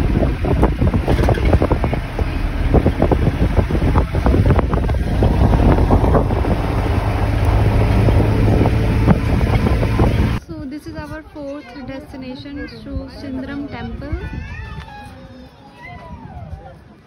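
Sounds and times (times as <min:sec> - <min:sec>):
wind blowing on microphone: 0:00.0 - 0:11.5, 0:12.1 - 0:17.0
bus engine and road rumble: 0:00.0 - 0:15.1
quick rattles and knocks: 0:01.0 - 0:02.0.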